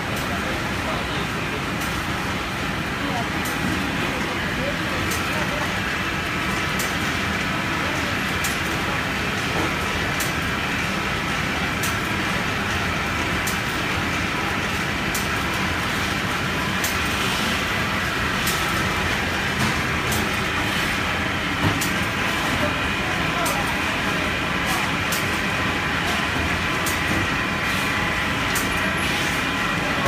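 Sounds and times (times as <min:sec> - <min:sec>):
machine whirring: 0:00.0 - 0:30.0.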